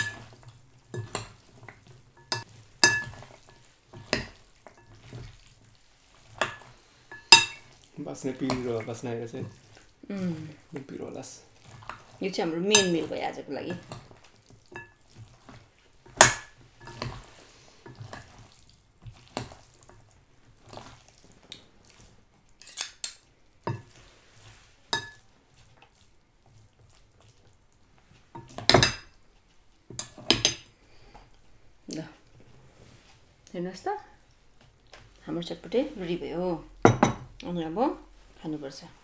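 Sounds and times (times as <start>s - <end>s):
cutlery clinking on dishes: 2.2s - 5.1s, 22.6s - 23.9s, 25.0s - 25.2s.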